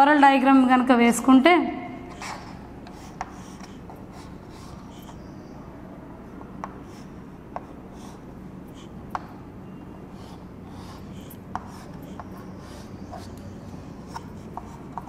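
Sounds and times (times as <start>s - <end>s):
chalk clicking on board: 2.1s - 5.2s, 6.6s - 8.2s, 10.2s - 15.0s
chalk strokes on chalkboard: 2.1s - 5.3s, 10.1s - 15.0s.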